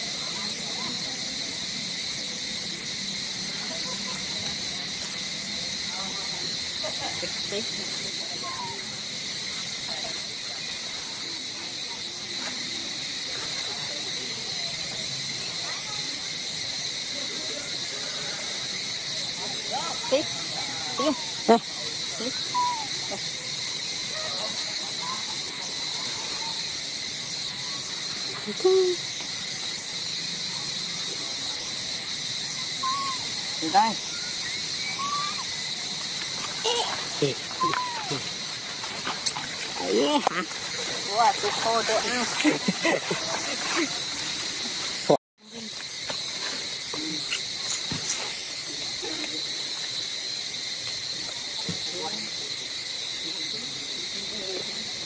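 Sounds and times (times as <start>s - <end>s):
insect chorus: 0.0s - 55.0s
short faint calls: 19.7s - 23.4s, 32.5s - 35.6s, 36.5s - 39.5s.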